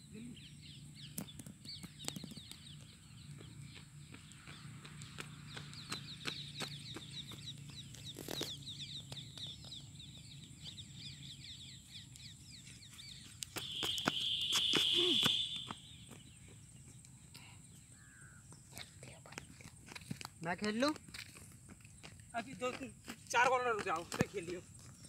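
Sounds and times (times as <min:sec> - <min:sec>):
birds chirping: 0:00.0 - 0:19.8
running footsteps: 0:01.8 - 0:10.2, 0:12.4 - 0:17.0, 0:18.5 - 0:25.0.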